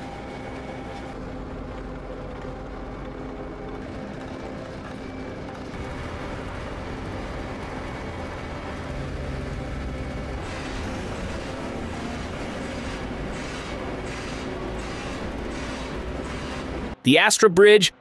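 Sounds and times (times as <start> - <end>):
diesel machines rumbling: 0.1 - 17.2.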